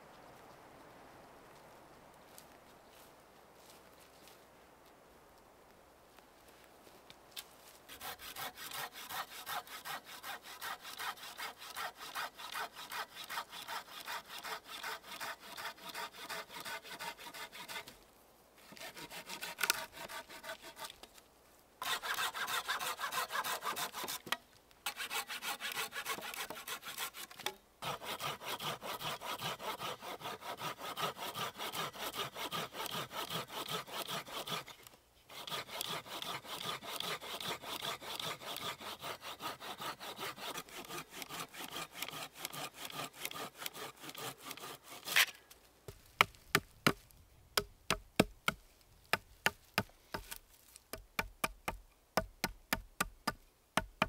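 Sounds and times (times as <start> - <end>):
hand saw cutting wood: 7.9 - 18.0, 18.6 - 21.1, 21.8 - 45.4, 47.6 - 54.0.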